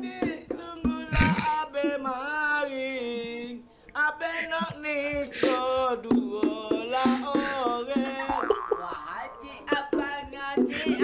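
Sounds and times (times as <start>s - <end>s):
man singing: 0.0s - 11.0s.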